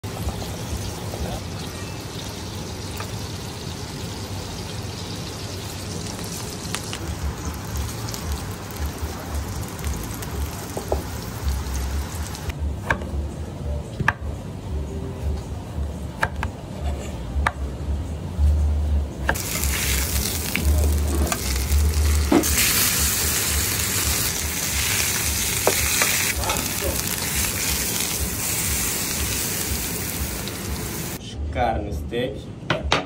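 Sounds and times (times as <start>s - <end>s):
steak sizzling in pan: 0.1s - 12.5s, 19.4s - 31.2s.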